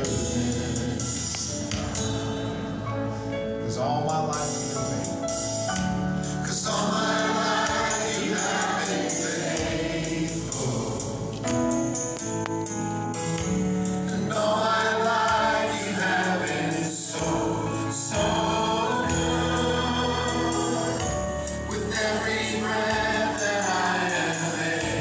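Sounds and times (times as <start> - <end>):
worship song with vocals: 0.0 - 2.8, 6.2 - 12.2, 13.8 - 25.0.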